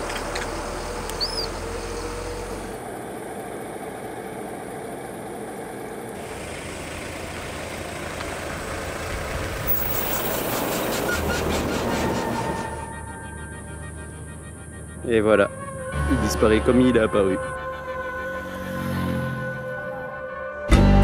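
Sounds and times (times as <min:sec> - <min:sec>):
traffic rumble and hiss: 0:00.0 - 0:19.8.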